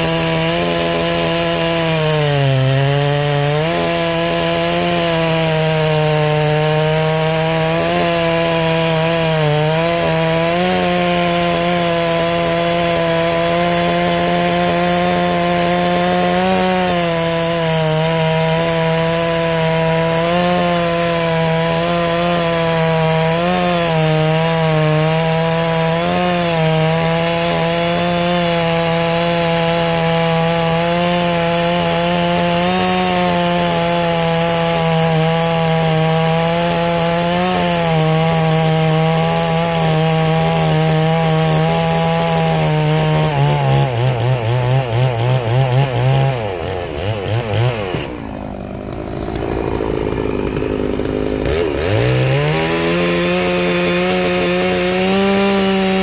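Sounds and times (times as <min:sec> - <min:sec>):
chainsaw cutting log: 0:00.0 - 0:56.0.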